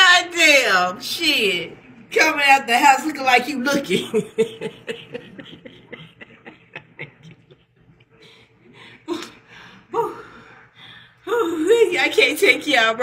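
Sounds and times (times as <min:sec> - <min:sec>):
woman laughing quietly: 0:04.2 - 0:09.4.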